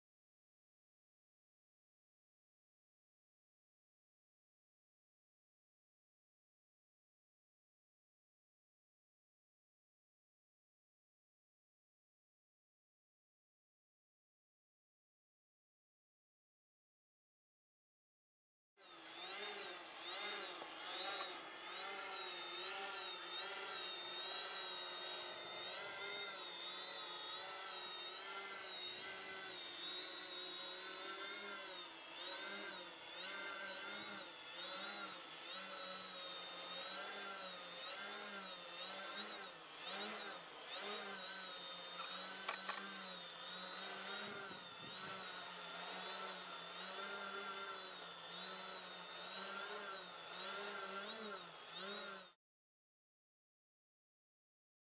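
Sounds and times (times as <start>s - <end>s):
drone motors whining with wavering pitch: 18.8s - 52.4s.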